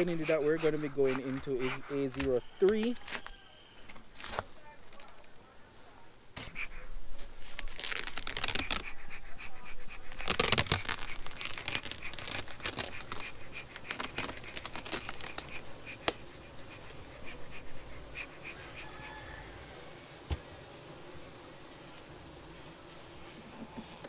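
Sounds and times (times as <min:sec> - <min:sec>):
hive cover crinkling and crackling: 0:00.0 - 0:05.4, 0:06.4 - 0:19.4.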